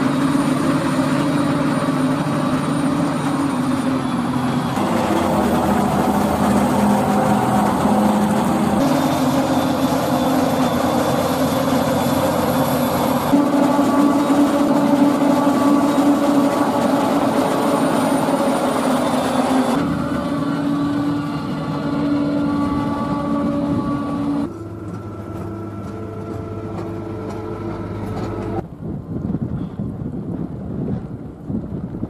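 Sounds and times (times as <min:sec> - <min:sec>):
tractor engine: 0:00.0 - 0:29.2
diesel engines running: 0:00.0 - 0:32.0
forage harvester running: 0:00.0 - 0:32.0
wind buffeting microphone: 0:27.9 - 0:32.0.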